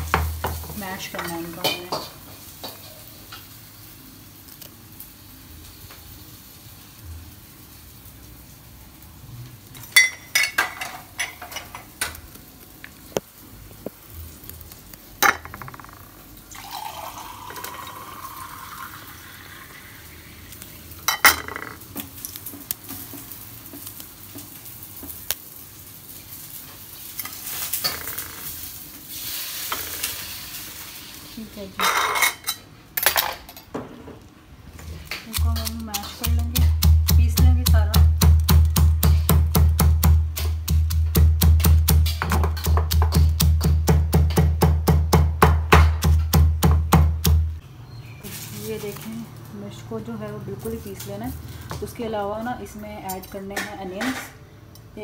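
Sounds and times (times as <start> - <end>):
glass rattle: 15.2 - 16.2
tap running water: 16.5 - 19.9.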